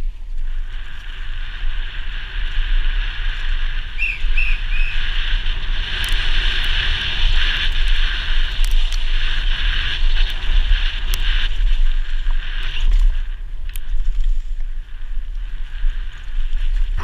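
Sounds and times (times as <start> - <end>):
wind rumbling on microphone: 0.0 - 17.0.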